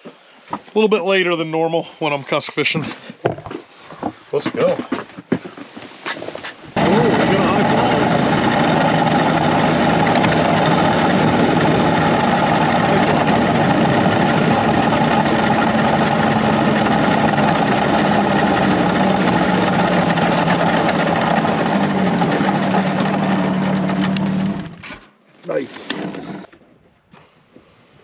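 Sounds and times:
snowmobile engine running: 6.8s - 24.8s, 25.5s - 26.5s.

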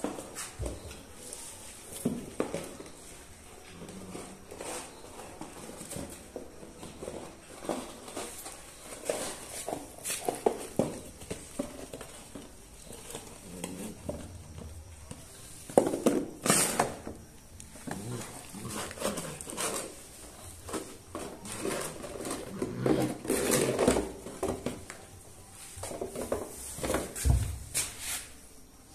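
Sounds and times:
puppy playing with cardboard box: 1.7s - 14.9s, 17.8s - 25.0s
puppy feet scuffing on floor: 4.2s - 13.3s, 25.6s - 28.4s.

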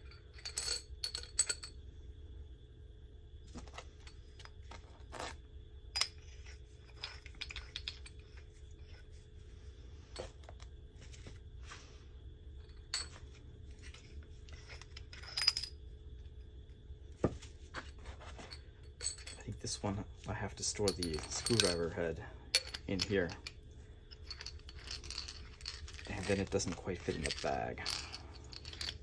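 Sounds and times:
metal shovel parts clicking and clinking: 18.1s - 29.0s.

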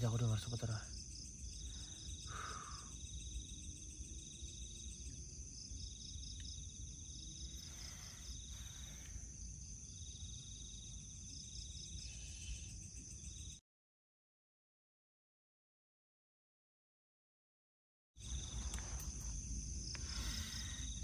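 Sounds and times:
crickets trilling: 0.0s - 13.6s, 18.2s - 21.0s.

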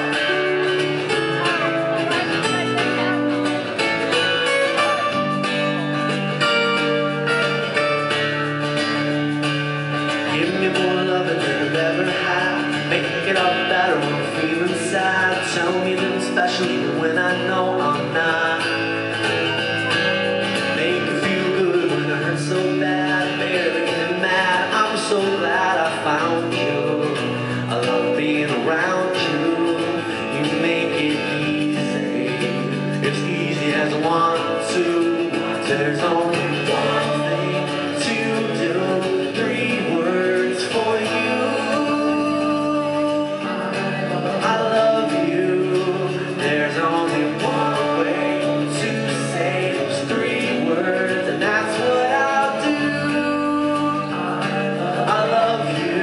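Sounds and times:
person singing: 0.0s - 56.0s
strummed acoustic guitars: 0.0s - 56.0s.

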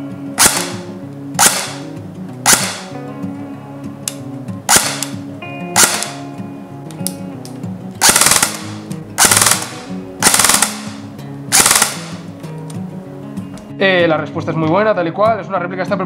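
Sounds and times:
airsoft gun firing bursts: 0.4s - 3.0s, 4.7s - 5.2s, 5.8s - 6.2s, 8.0s - 12.3s.

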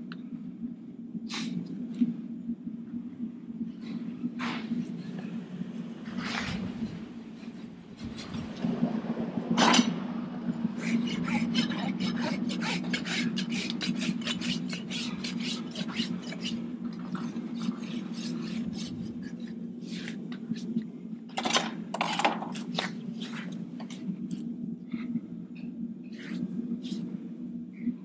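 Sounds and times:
steady low hum: 0.0s - 28.0s
rasp scraping horse hoof: 10.8s - 20.2s.

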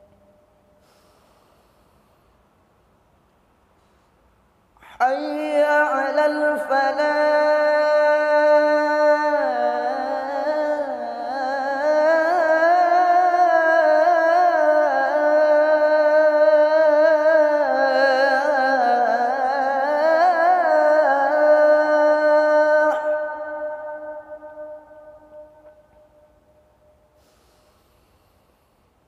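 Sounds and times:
man singing call to prayer: 4.8s - 26.1s.

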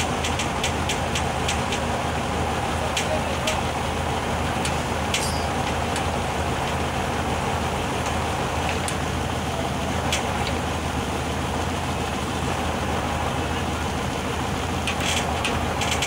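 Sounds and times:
diesel truck engine running: 0.0s - 16.0s
sharp clicks: 0.1s - 1.9s.

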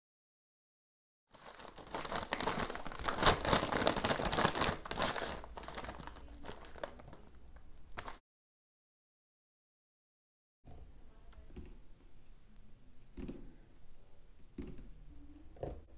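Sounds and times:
plastic chip bags crinkling: 1.4s - 8.2s.

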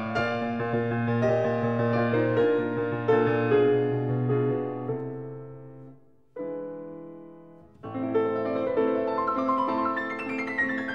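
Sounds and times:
piano music: 0.0s - 10.9s.

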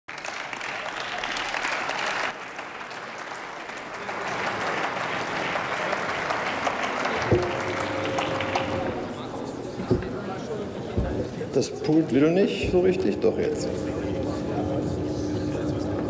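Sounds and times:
people applauding: 0.1s - 9.5s
thump: 7.2s - 7.6s.

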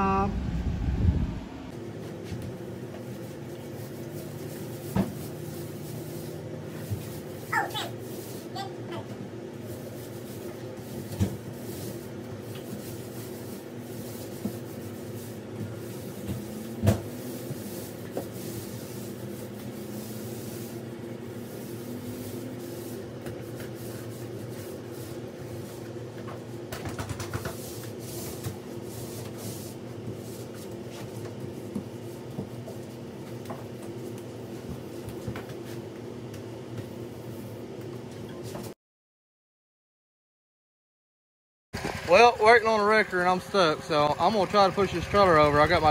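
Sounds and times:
low hum: 0.0s - 1.8s
paint roller knocks and clatter: 23.2s - 33.9s, 44.2s - 45.9s.

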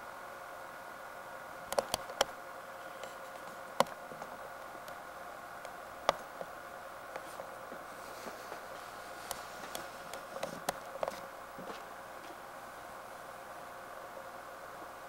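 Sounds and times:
faint hum: 0.0s - 15.0s
steady hiss: 0.0s - 15.0s
sharp clicks and ticks: 1.7s - 2.4s, 3.0s - 5.0s, 5.6s - 6.5s.

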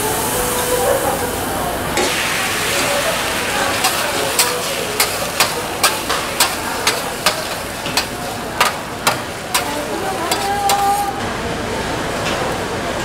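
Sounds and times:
egg sizzling: 2.0s - 11.2s
metal spatula clacking on griddle: 3.8s - 11.1s.

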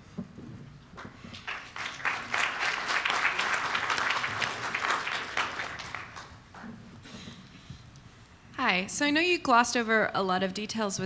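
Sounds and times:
audience applauding: 1.3s - 6.5s.

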